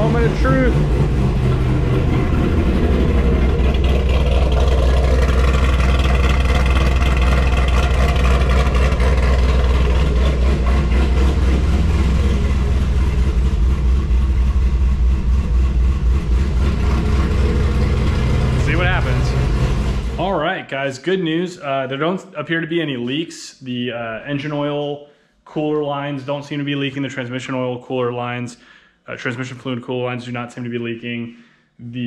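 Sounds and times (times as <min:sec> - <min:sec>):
car engine idling: 0:00.0 - 0:20.4.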